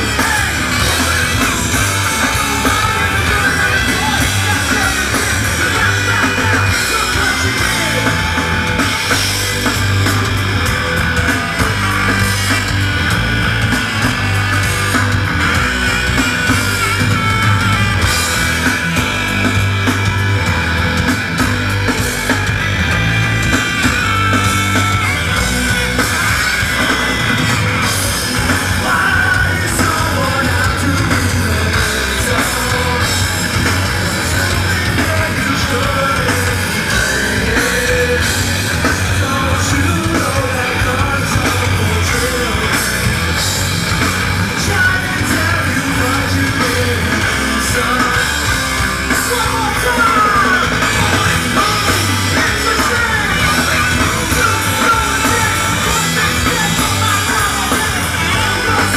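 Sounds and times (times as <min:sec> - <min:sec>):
person yelling and singing: 0:00.0 - 0:09.1, 0:28.5 - 0:33.4, 0:44.5 - 0:48.4, 0:49.0 - 0:58.9
rock band playing live: 0:00.0 - 0:58.9.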